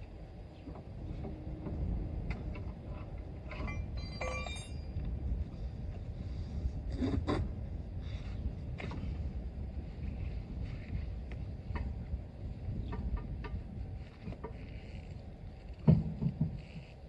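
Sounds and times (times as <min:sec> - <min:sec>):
low steady rumble: 0:00.0 - 0:17.0
metallic clatter: 0:02.5 - 0:05.0.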